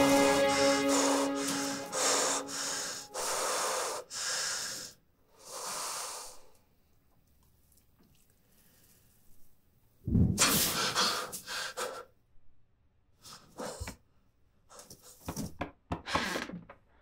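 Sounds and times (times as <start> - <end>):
held music chord: 0.0 - 3.4
man breathing deeply: 0.7 - 6.6.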